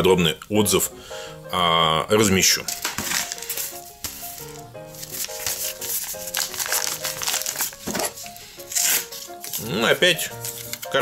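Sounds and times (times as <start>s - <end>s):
background music with melodic notes: 0.0s - 11.0s
paper envelope crinkling: 2.5s - 11.0s.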